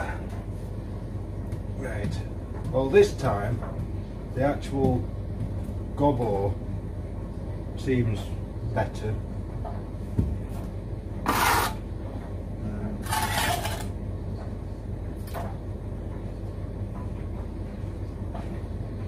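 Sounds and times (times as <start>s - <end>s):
trowel scraping mortar on brick: 11.2s - 11.8s, 13.0s - 13.9s.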